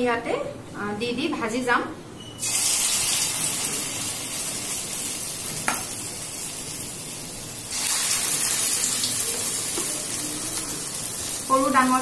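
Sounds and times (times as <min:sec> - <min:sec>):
batter sizzling in hot oil: 0:02.4 - 0:12.0.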